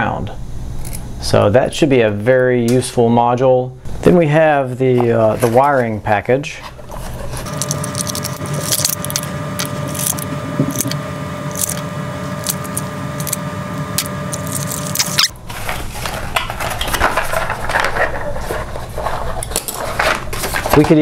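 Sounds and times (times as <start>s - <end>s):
cardboard rustling and scraping: 6.6s - 11.0s, 14.4s - 21.0s.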